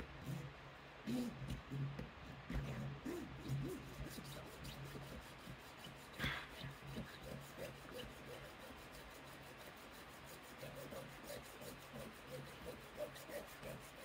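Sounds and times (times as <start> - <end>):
saw rasping on key blank: 10.3 - 14.0.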